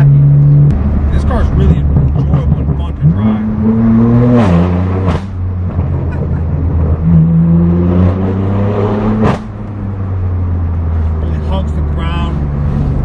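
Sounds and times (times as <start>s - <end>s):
exhaust cracks: 0.0s - 7.4s
car engine revving: 0.0s - 13.0s.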